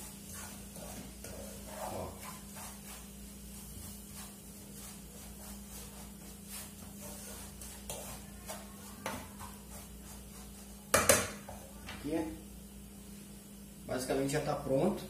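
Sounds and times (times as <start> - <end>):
wooden spoon scraping a pan: 0.0 - 11.8
faint sizzle: 0.0 - 15.0.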